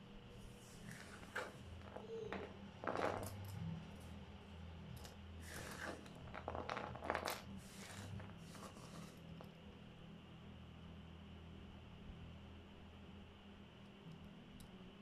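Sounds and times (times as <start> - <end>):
hand brushing across wooden board: 7.6 - 9.2.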